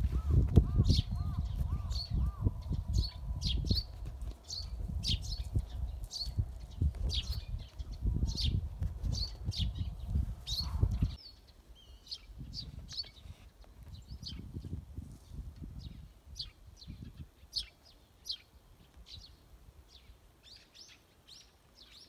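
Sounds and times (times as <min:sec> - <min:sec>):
wind rumble on microphone: 0:00.0 - 0:11.2, 0:12.1 - 0:17.7
small birds chirping: 0:00.0 - 0:22.0.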